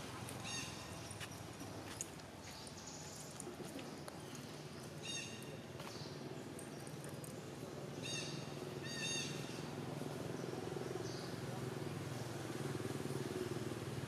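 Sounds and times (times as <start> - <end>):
monkey high-pitched calls: 0.4 - 1.0, 5.0 - 5.4, 8.0 - 9.6.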